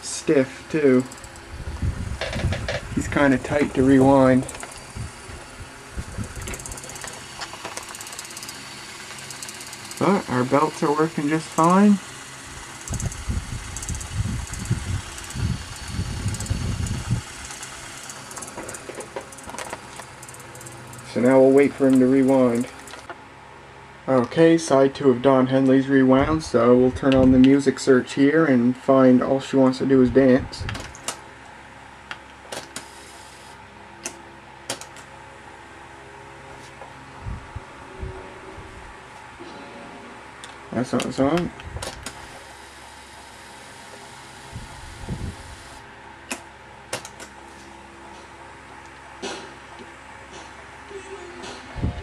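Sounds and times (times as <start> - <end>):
cassette deck rewinding: 0.0 - 23.1
sharp clicks: 1.0 - 1.5, 6.2 - 10.0, 12.8 - 15.4, 34.0 - 35.1.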